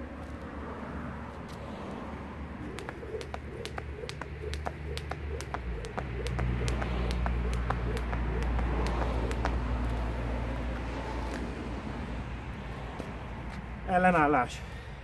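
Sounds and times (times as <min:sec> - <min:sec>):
vehicle rumble: 0:00.0 - 0:15.0
jump rope slapping paving: 0:02.6 - 0:11.5.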